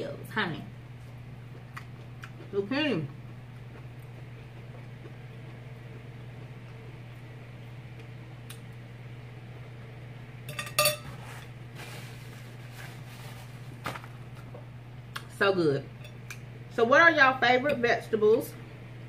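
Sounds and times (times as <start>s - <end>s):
steady low hum: 0.0s - 19.0s
chewing: 1.0s - 6.8s
fork clinking on a plate: 10.5s - 11.2s.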